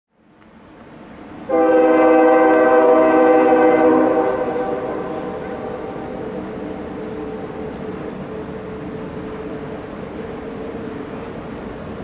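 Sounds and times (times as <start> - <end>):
locomotive air horn blast: 1.5 - 7.6.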